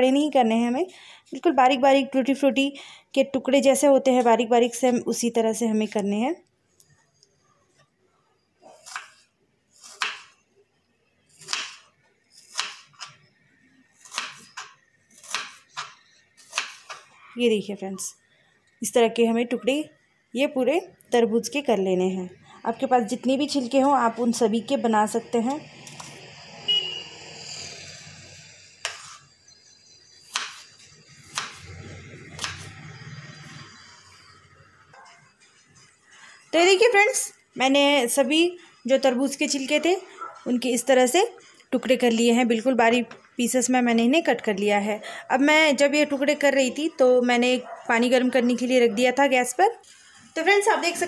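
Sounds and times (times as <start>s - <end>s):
knife chopping on wooden board: 9.8s - 10.3s, 11.4s - 11.8s, 12.4s - 13.1s, 14.0s - 17.0s, 30.3s - 30.7s, 31.3s - 31.7s.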